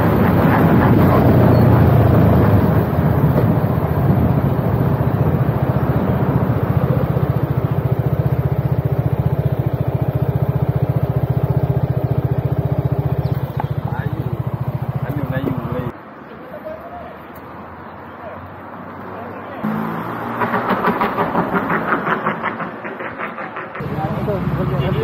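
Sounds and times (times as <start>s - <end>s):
motorcycle engine idling: 0.1s - 15.9s.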